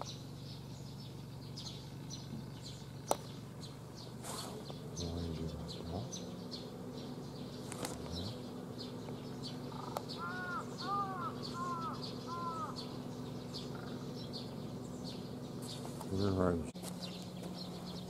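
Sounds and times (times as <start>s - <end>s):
steady low hum: 0.0s - 18.0s
crow cawing: 9.6s - 14.1s.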